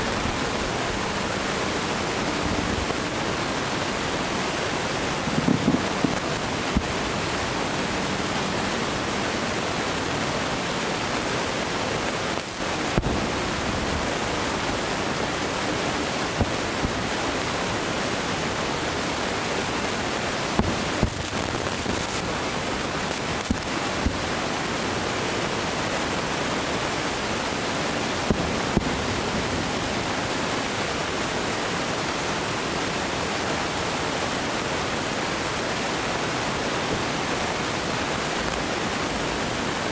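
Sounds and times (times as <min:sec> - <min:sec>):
steady loud hiss: 0:00.0 - 0:39.9
distant fireworks booms and pops: 0:05.3 - 0:06.9, 0:13.0 - 0:13.4, 0:20.6 - 0:22.2, 0:23.4 - 0:24.2, 0:28.3 - 0:29.2.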